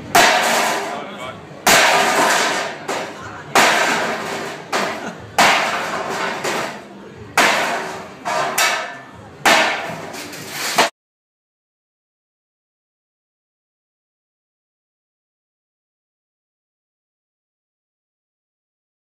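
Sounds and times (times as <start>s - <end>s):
wooden boards smashing: 0.1s - 0.9s, 1.7s - 6.8s, 7.4s - 10.0s.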